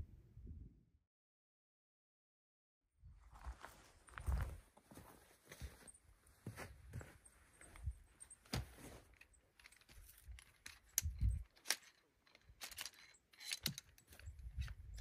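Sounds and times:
footsteps: 0:03.3 - 0:09.2
gear clinking and rattling: 0:07.2 - 0:15.0.

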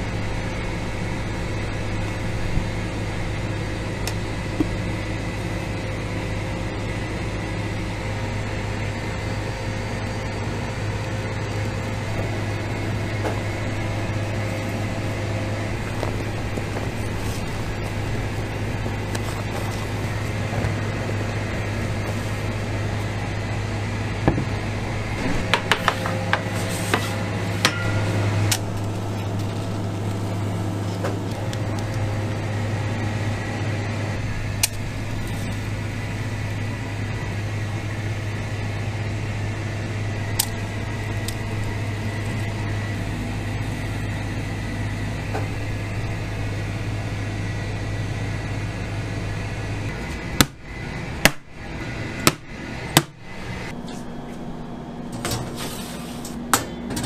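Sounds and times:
kitchen machinery hum: 0:00.0 - 0:57.0.

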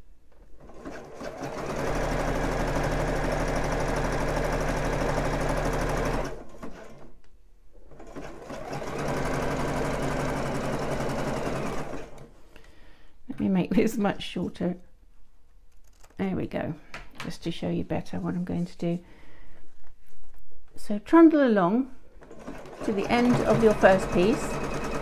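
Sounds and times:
sewing machine stitching: 0:00.6 - 0:07.1, 0:07.9 - 0:12.3, 0:22.2 - 0:25.0.

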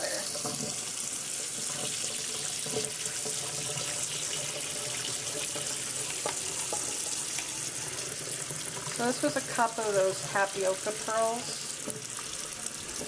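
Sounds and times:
water poured from pot: 0:00.0 - 0:09.9
faucet running into sink: 0:00.0 - 0:13.0.

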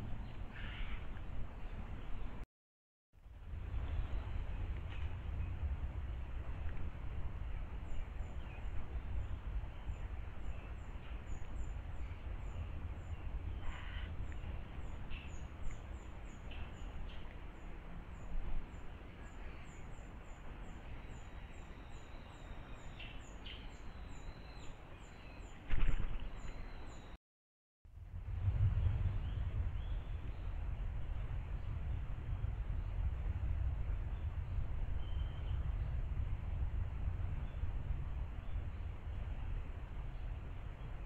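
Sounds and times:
steady low rumble: 0:03.2 - 0:21.1, 0:27.9 - 0:41.0.

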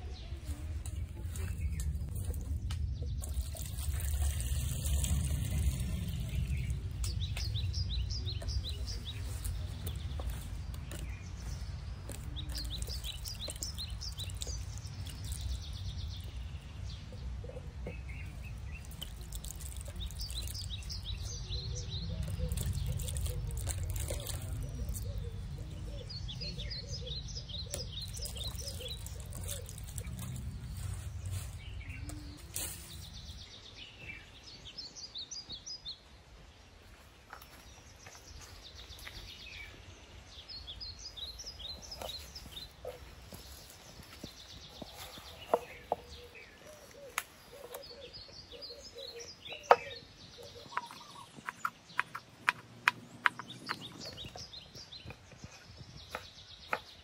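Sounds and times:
small birds chirping: 0:00.0 - 0:57.0
water dripping: 0:01.3 - 0:07.6, 0:12.0 - 0:16.4, 0:18.4 - 0:21.3, 0:22.2 - 0:25.1, 0:27.7 - 0:30.4
vegetables washed in water basin: 0:03.2 - 0:06.9, 0:18.4 - 0:21.3, 0:22.2 - 0:25.1.

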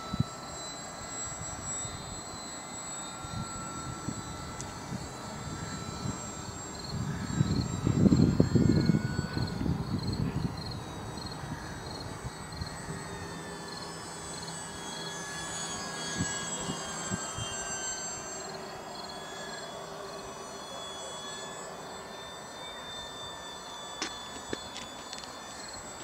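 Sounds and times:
model plane motor whining: 0:00.0 - 0:26.0
wind buffeting microphone: 0:03.3 - 0:13.3.

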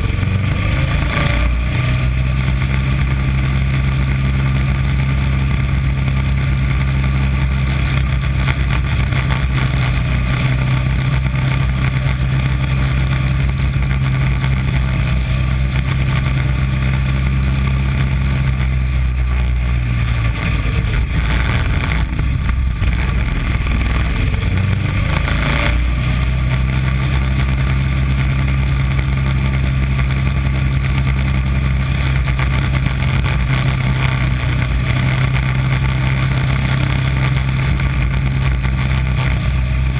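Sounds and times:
race car engine running hard: 0:00.0 - 0:39.9.

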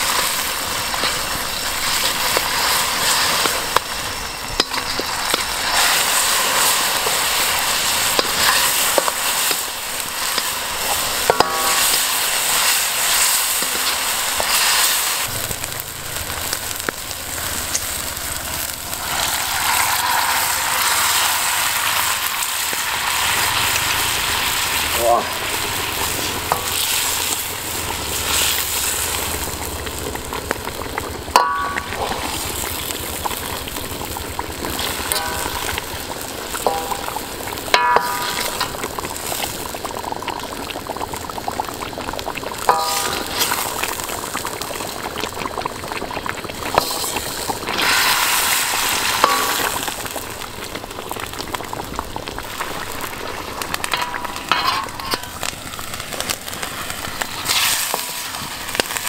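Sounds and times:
marinade sizzling in wok: 0:00.0 - 0:59.0
metal ladle clinking wok: 0:07.4 - 0:12.4, 0:31.3 - 0:32.4, 0:34.7 - 0:39.0, 0:42.7 - 0:43.7, 0:53.9 - 0:55.4.

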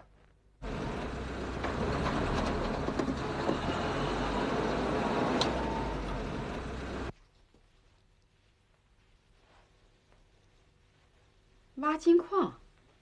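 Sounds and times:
road traffic passing: 0:00.6 - 0:07.1.

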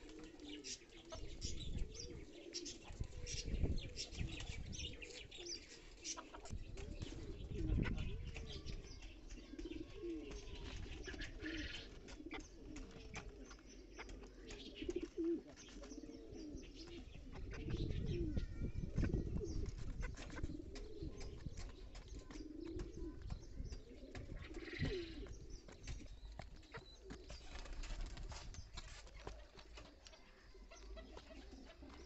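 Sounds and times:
pigeons cooing: 0:00.0 - 0:32.0
chickens pecking clicks: 0:08.3 - 0:16.0, 0:19.6 - 0:32.0.

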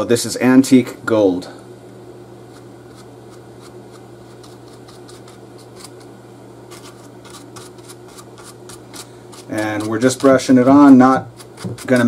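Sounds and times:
steady low hum: 0:00.0 - 0:12.0
paintbrush ticking on foam: 0:06.8 - 0:12.0.

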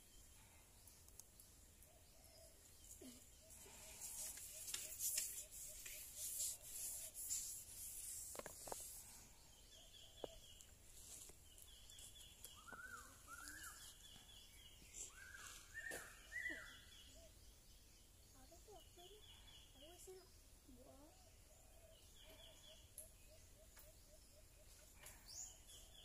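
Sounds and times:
dry leaves and twigs crackling: 0:02.9 - 0:09.2, 0:10.2 - 0:14.2
high bird chirps: 0:11.5 - 0:17.4
bird calling: 0:11.6 - 0:17.4.

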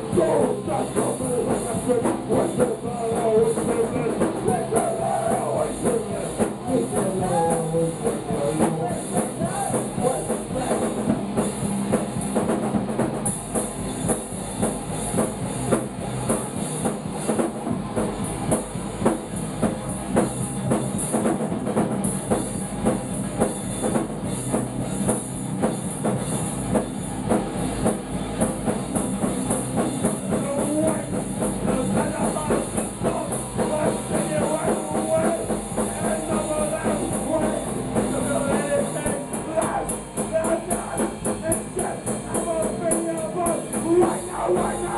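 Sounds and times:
person singing: 0:00.0 - 0:10.8
electric guitar: 0:00.0 - 0:44.9
pounding drum kit: 0:00.0 - 0:44.9.

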